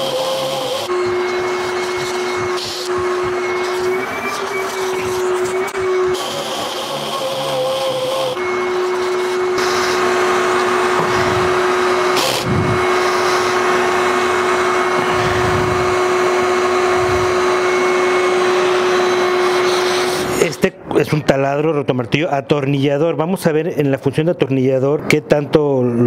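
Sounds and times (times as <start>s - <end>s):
hammer drill motor whine: 0.0s - 20.5s.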